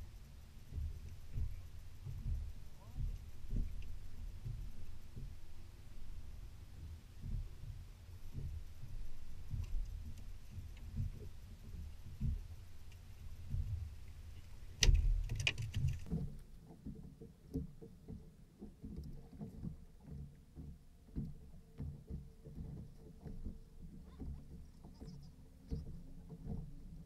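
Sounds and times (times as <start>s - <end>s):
trolling motor hum: 0.0s - 15.3s
waves slapping boat hull: 0.0s - 27.0s.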